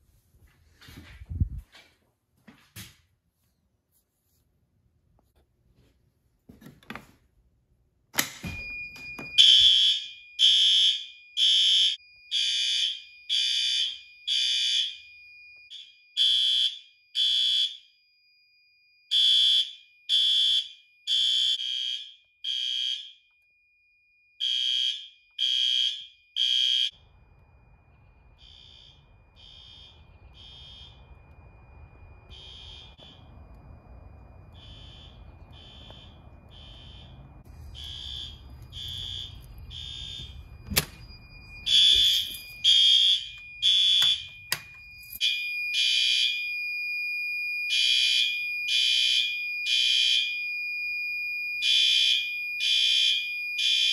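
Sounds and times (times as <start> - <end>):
fire alarm horn blasts: 8.4 - 18.0, 19.1 - 23.4, 24.3 - 53.9
steady high tone: 26.9 - 45.7
low rumble: 27.0 - 41.7.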